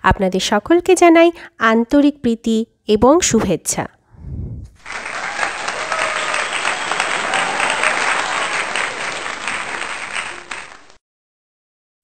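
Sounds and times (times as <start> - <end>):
crowd applauding: 4.8 - 11.0.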